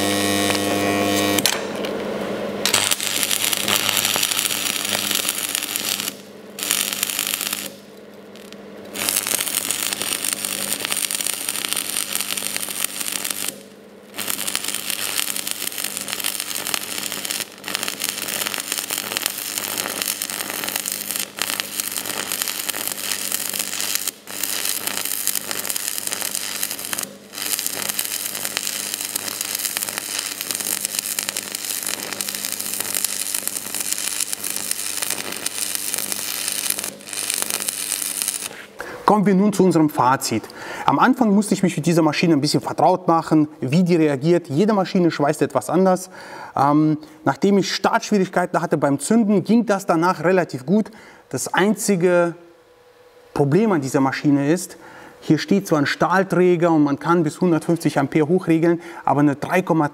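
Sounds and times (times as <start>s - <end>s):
welding arc crackling: 0.0s - 1.9s, 2.6s - 40.4s.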